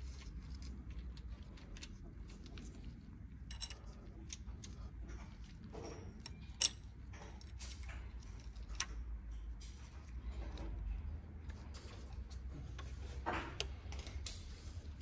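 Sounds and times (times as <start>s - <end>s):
metal chain clicking and rattling: 1.4s - 9.8s.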